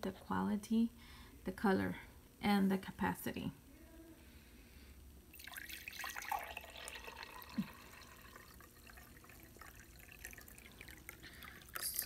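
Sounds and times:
water splashing into a glass: 5.4s - 12.0s.

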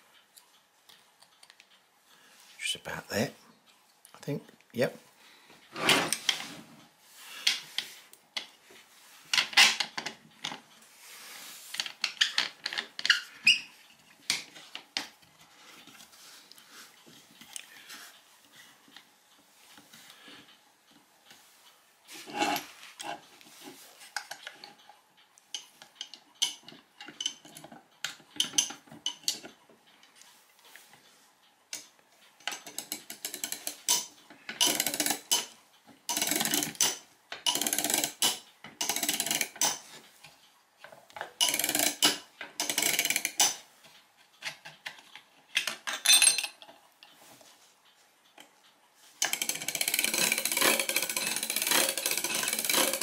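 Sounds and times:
metal parts clicking and knocking: 9.3s - 10.8s, 11.7s - 15.2s, 25.5s - 30.2s, 31.7s - 40.0s, 40.8s - 43.7s, 44.4s - 46.8s, 49.2s - 53.0s
ratchet clicking: 32.6s - 35.5s, 36.1s - 39.9s, 41.4s - 43.6s, 49.2s - 53.0s.

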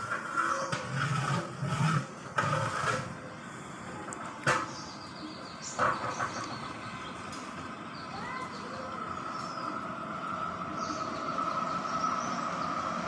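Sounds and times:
metal ladle scraping a metal pot: 0.0s - 3.3s.

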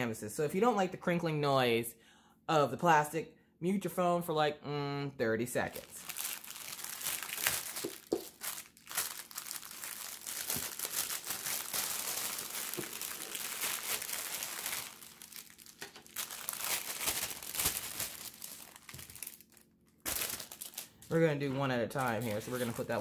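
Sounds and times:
plastic bag crinkling: 5.6s - 23.0s.

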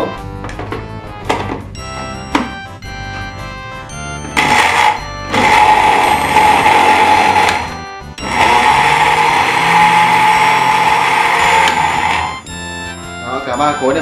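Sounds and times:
blender motor whining: 4.3s - 12.5s.

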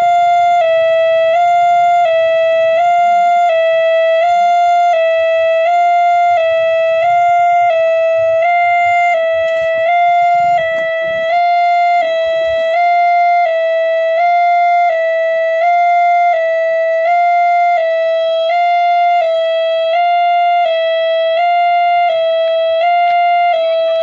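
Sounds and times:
level crossing two-tone alarm: 0.0s - 24.0s.

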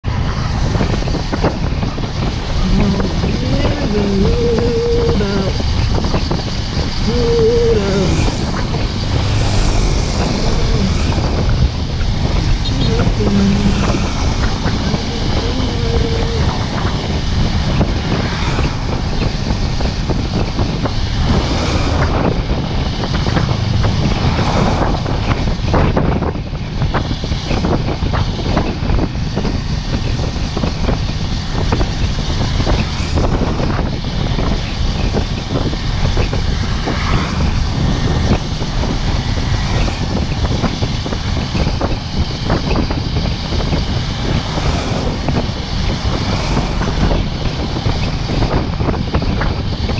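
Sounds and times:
motorcycle engine: 0.0s - 26.5s
wind buffeting microphone: 0.0s - 49.9s.

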